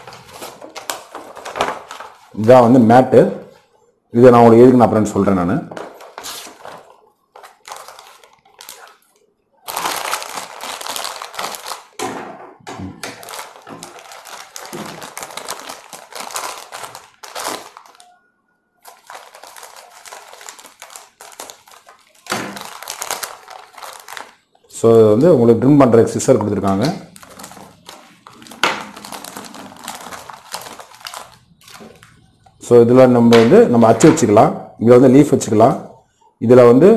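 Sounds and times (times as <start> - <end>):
plastic bags crinkling: 0.0 - 2.8, 5.8 - 12.1, 12.8 - 18.2, 18.8 - 24.7, 26.1 - 32.6.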